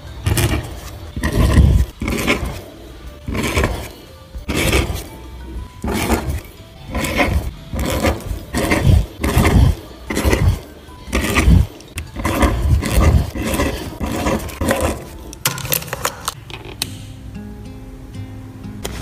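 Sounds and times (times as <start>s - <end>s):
faint background music: 0.0s - 19.0s
pen scratching on paper: 0.2s - 15.4s.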